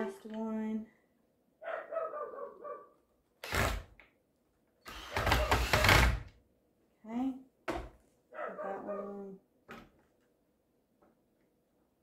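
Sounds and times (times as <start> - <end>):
cordless drill driving screw into wood: 3.4 - 4.0, 4.8 - 6.3.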